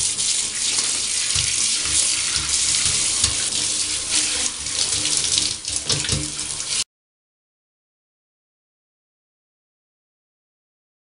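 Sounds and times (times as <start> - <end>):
shower water spraying: 0.0 - 6.9.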